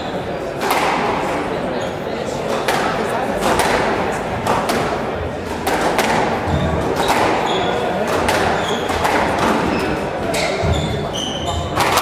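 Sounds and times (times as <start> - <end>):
squash ball hitting rackets and walls: 0.3 - 12.0
shoes squeaking on wooden floor: 6.4 - 12.0.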